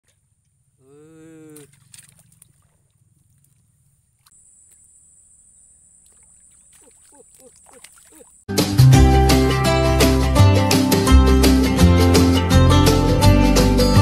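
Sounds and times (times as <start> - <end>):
water splashing and trickling: 1.3 - 5.1, 5.9 - 8.5.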